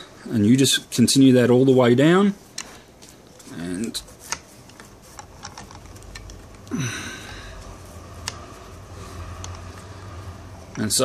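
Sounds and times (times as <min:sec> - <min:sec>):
low steady hum: 0:00.0 - 0:11.0
cord clicks and rustles: 0:02.5 - 0:08.6.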